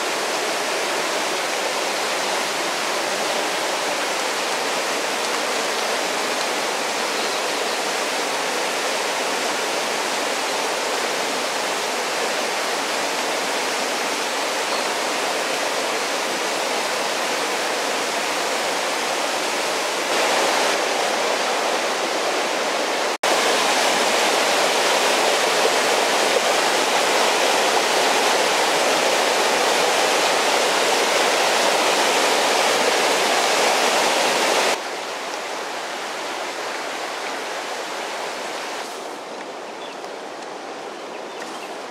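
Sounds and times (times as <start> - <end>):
stream rushing over stones: 0.0 - 41.9.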